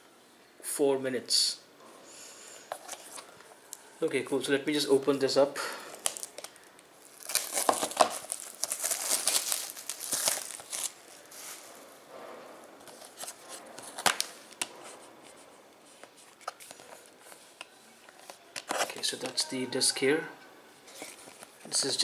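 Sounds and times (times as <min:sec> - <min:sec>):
plastic wrap tearing and crinkling: 0:05.8 - 0:12.0, 0:16.2 - 0:19.1.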